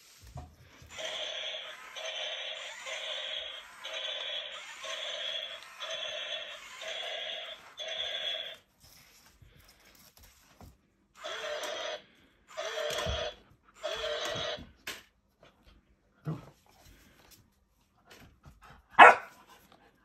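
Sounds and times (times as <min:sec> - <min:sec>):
robot toy whirring: 0:00.8 - 0:08.6, 0:11.2 - 0:14.6.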